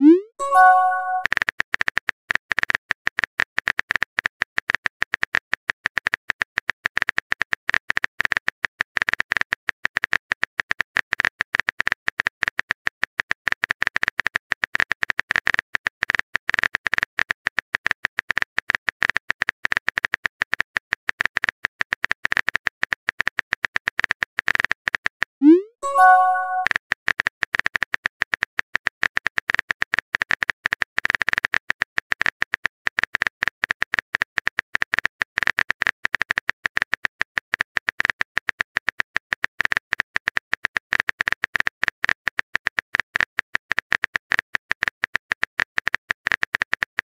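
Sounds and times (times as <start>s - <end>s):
keyboard typing clicks: 0.0s - 1.3s, 25.4s - 26.7s.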